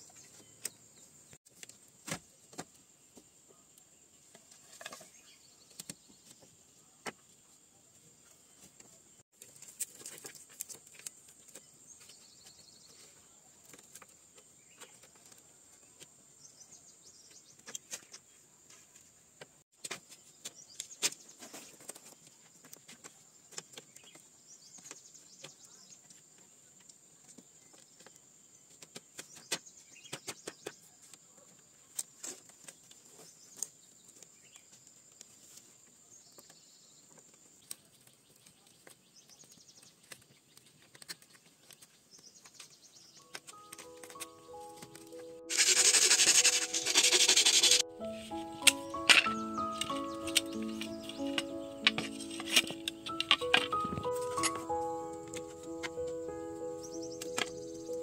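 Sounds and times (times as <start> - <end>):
steady high hiss: 43.4 - 58.0.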